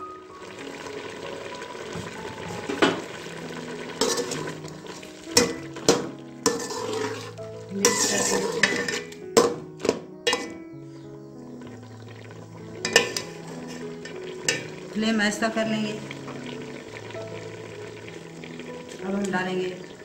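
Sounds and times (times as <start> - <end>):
frying sizzle: 0.0 - 20.0
spoon clinking against pan: 4.0 - 4.5, 5.4 - 7.2, 7.8 - 10.6, 12.8 - 13.3
metal spoon scraping a pan: 4.0 - 10.6, 12.8 - 14.8.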